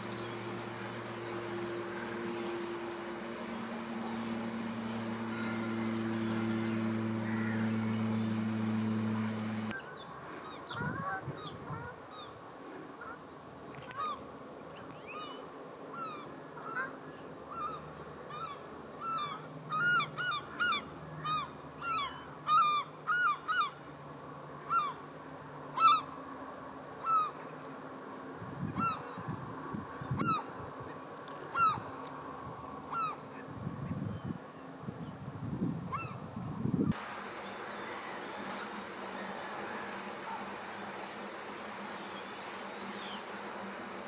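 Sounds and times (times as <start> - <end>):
geese honking: 0.0 - 9.8, 37.0 - 44.0.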